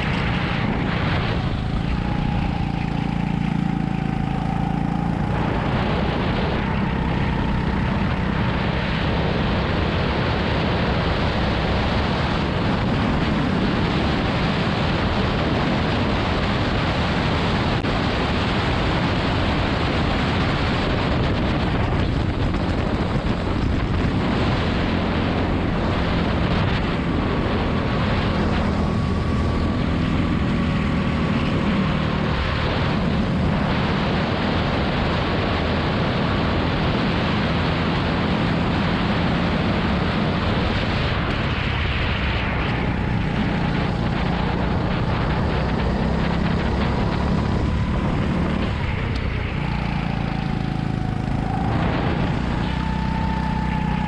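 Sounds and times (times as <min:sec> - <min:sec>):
go-kart engine running: 0:00.0 - 0:54.0
wind rushing over microphone: 0:00.0 - 0:54.0.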